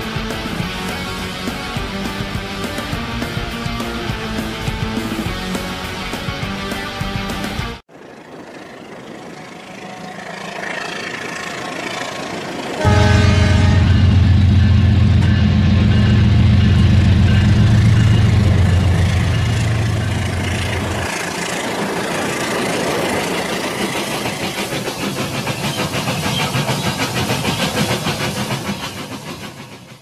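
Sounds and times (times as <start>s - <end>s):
diesel locomotive engine drone: 0.0s - 30.0s
train wheels clickety-clack: 11.0s - 30.0s.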